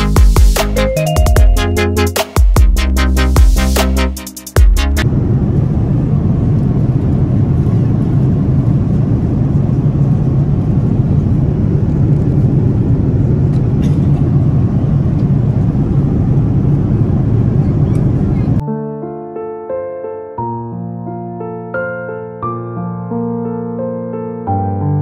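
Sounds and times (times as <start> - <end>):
jet airliner cabin rumble: 5.0 - 18.6.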